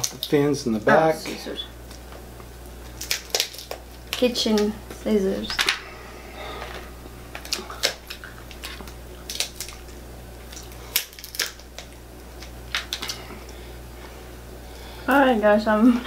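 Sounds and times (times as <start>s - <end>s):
lobster shell cracking: 0.0s - 0.5s, 1.8s - 5.9s, 6.5s - 13.6s.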